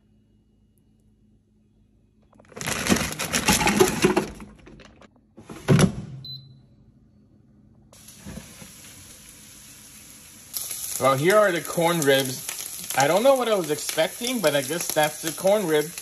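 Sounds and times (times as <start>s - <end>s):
plastic bag crinkling: 2.4s - 4.3s, 10.6s - 16.0s
air fryer fan hiss: 8.0s - 16.0s.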